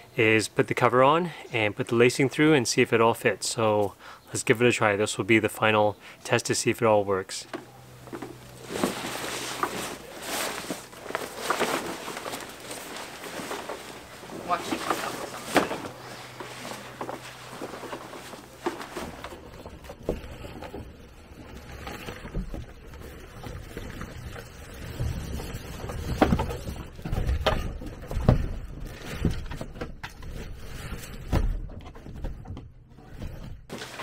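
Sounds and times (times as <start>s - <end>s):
nylon spray deck rustling: 8.0s - 29.4s, 33.7s - 34.0s.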